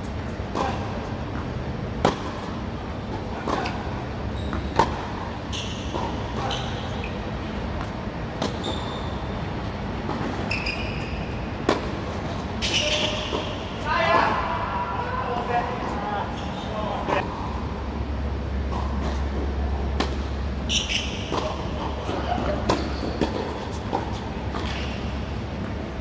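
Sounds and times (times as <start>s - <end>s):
shoes squeaking on court: 3.1s - 13.6s, 16.2s - 17.2s, 20.6s - 25.9s.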